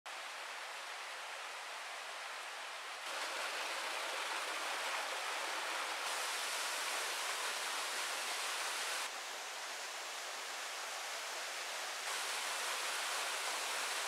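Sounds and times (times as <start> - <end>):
rushing water: 0.1 - 14.0.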